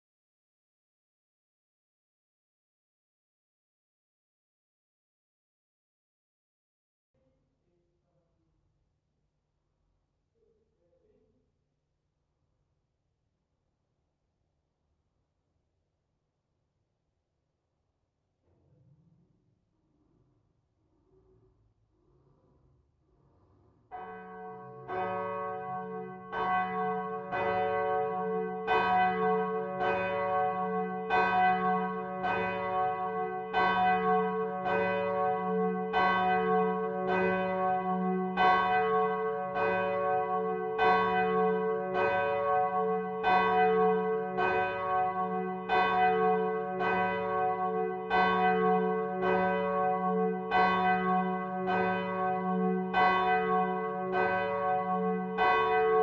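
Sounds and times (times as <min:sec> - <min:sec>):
church bell ringing: 0:23.9 - 0:56.0.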